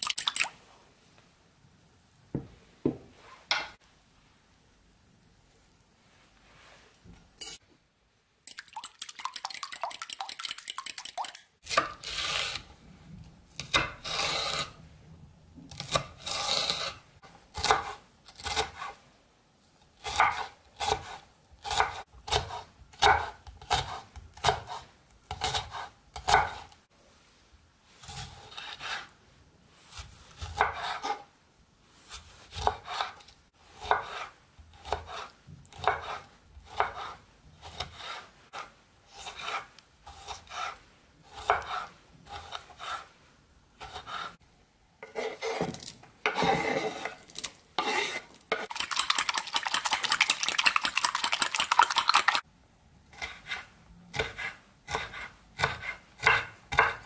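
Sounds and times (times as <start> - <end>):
knife chopping on wooden board: 21.8 - 24.8, 25.4 - 26.6, 33.8 - 38.2, 41.3 - 43.0, 54.2 - 57.0.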